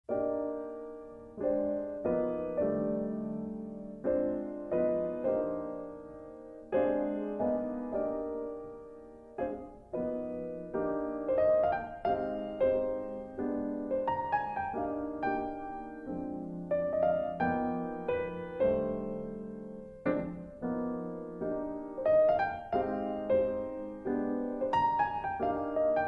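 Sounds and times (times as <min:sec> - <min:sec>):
slow solo piano: 0:00.1 - 0:26.0.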